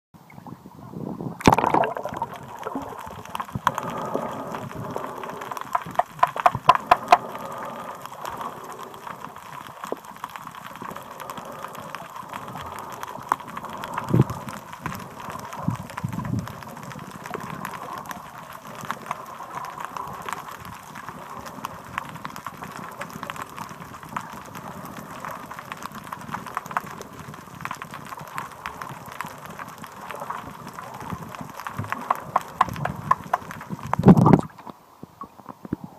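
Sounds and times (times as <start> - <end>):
muffled underwater water wash: 0.2 - 35.9
sharp clicks: 1.6 - 23.3.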